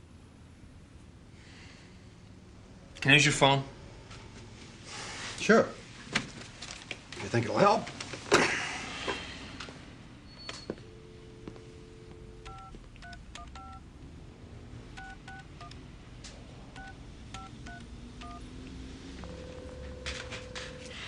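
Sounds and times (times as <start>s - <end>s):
touch-tone key beeps: 10.3s - 13.8s, 15.0s - 15.8s, 16.8s - 18.4s
telephone dial tone: 10.6s - 13.8s, 15.0s - 15.8s, 16.8s - 18.4s, 19.2s - 21.0s
telephone line ringing: 10.6s - 13.8s, 15.0s - 15.7s, 16.8s - 18.4s, 19.2s - 21.0s.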